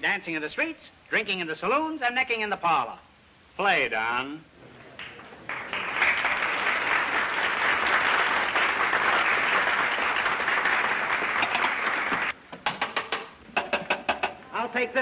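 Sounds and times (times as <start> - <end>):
audience applauding: 5.0 - 12.4.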